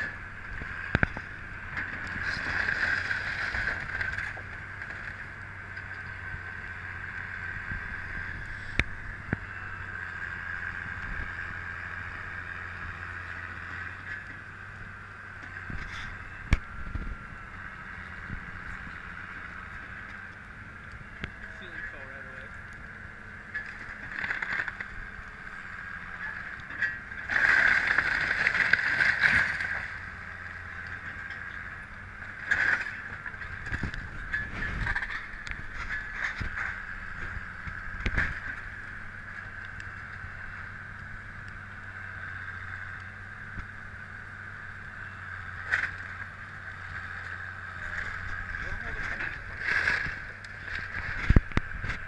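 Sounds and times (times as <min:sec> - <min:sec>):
excavator engine drone: 0:00.0 - 0:52.0
boards cracking and debris falling: 0:26.8 - 0:29.9
timber crashing and splintering: 0:27.2 - 0:29.9.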